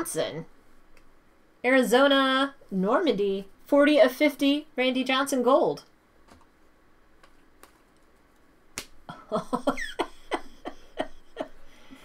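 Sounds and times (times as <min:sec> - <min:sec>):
trading cards shuffling: 0:07.2 - 0:09.0.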